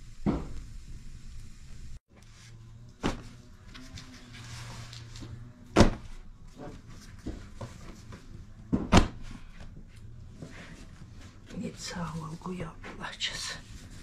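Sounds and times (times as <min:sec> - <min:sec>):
bread stacks thumping down: 0:03.0 - 0:03.4, 0:05.7 - 0:06.2, 0:08.7 - 0:09.4.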